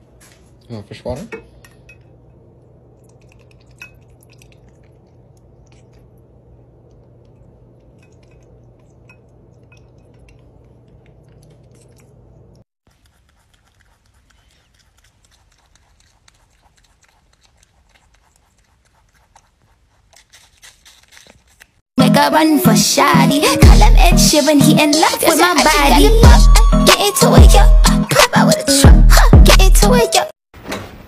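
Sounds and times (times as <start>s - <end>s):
low steady hum: 0.0s - 12.6s
rabbit crunching apple: 2.6s - 21.9s.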